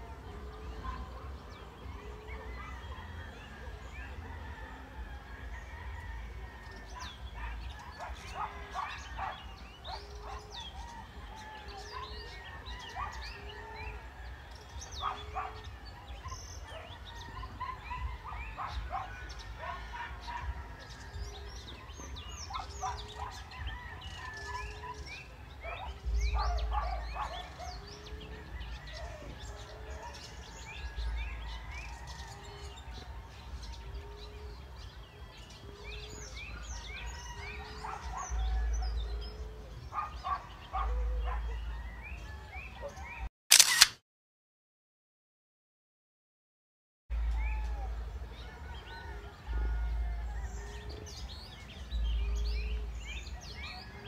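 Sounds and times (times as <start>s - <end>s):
dove cooing: 0.0s - 42.0s
small birds chirping and trilling: 0.0s - 43.9s, 47.1s - 54.0s.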